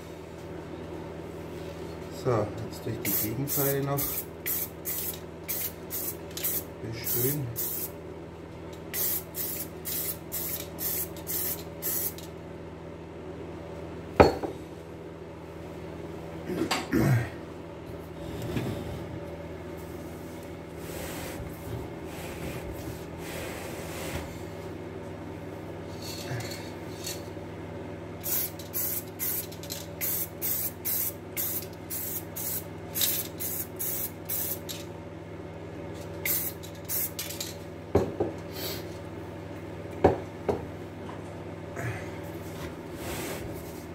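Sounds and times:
steady low hum: 0:00.0 - 0:43.9
spray paint hissing bursts: 0:03.1 - 0:06.6, 0:09.0 - 0:12.2, 0:28.2 - 0:34.6, 0:36.3 - 0:37.2.

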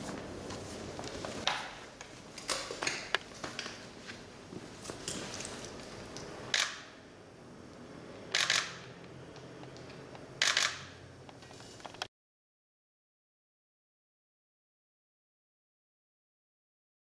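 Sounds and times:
camera shutters firing: 0:06.5 - 0:06.9, 0:08.4 - 0:08.9, 0:10.4 - 0:11.0.

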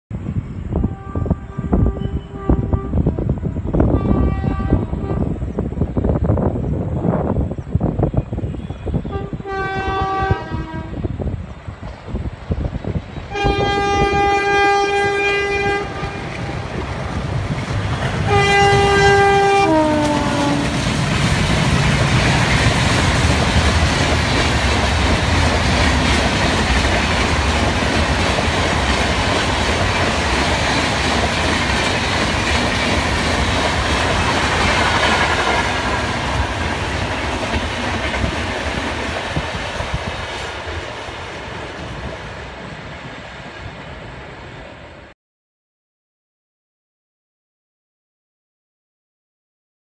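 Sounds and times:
locomotive horn blasts: 0:00.7 - 0:03.2, 0:03.9 - 0:05.4, 0:08.6 - 0:11.1, 0:13.3 - 0:16.6, 0:18.2 - 0:20.8
train wheels rushing on rails: 0:01.8 - 0:45.1.

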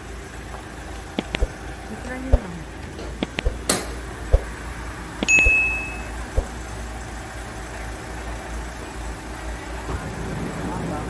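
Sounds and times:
van engine idling: 0:00.0 - 0:11.0
sharp clicks and knocks: 0:01.2 - 0:01.6, 0:02.3 - 0:04.5
short electronic ding: 0:05.2 - 0:06.1.

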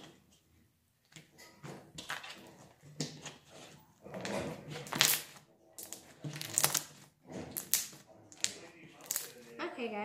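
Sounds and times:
slime squelching and crackling: 0:01.9 - 0:09.7.

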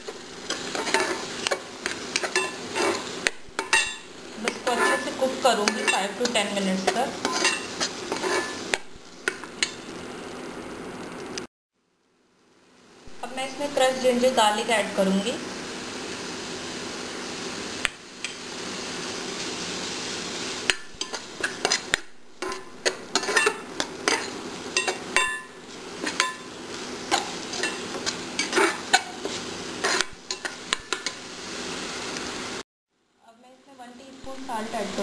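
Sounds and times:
steady hiss: 0:00.0 - 0:35.0
metal spatula scraping a pan: 0:00.1 - 0:09.8, 0:20.7 - 0:31.2.

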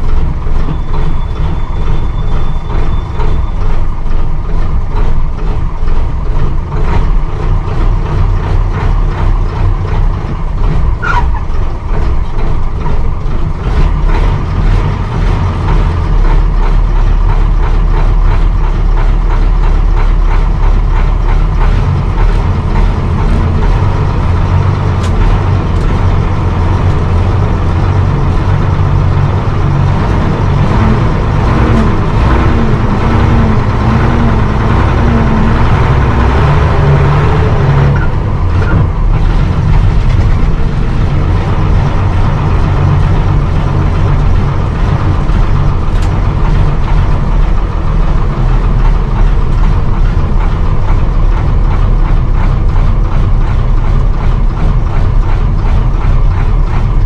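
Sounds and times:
bus diesel engine running: 0:00.0 - 0:57.0
bodywork rattles and clicks: 0:37.8 - 0:57.0.

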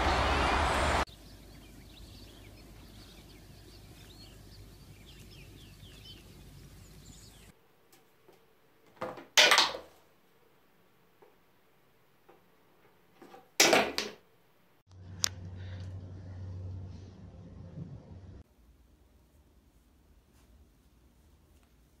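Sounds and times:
distant birds chirping: 0:00.0 - 0:07.6.

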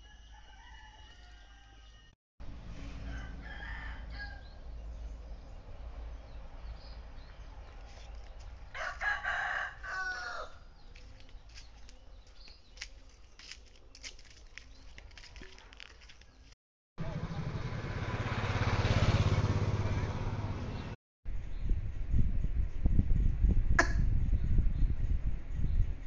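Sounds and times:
rooster crowing: 0:00.0 - 0:02.2, 0:02.8 - 0:04.6, 0:08.7 - 0:10.7
steady low rumble: 0:21.3 - 0:26.0.

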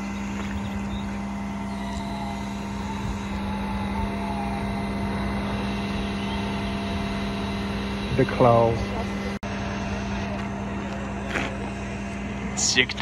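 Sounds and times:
truck engine droning: 0:00.0 - 0:13.0.

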